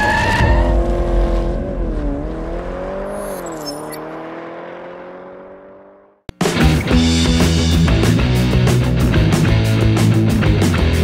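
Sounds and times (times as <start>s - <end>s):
car engine revving: 0.0s - 6.3s.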